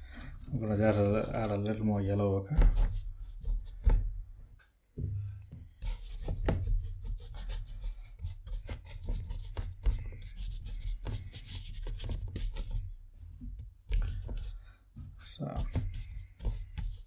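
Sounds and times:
brush scrubbing rough paper: 0.2s - 1.8s, 5.8s - 13.0s, 14.0s - 17.0s.

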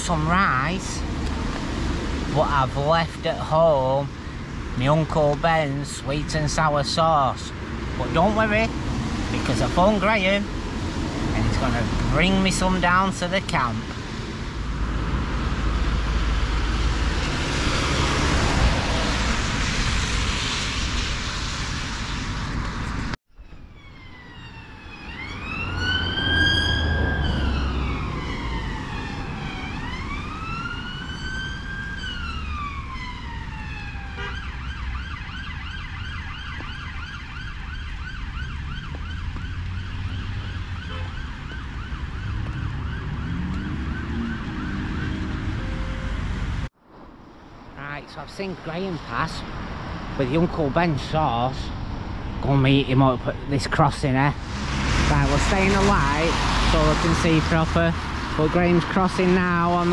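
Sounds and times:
road traffic passing: 0.0s - 59.9s
emergency vehicle siren: 23.3s - 46.7s, 54.3s - 59.9s.

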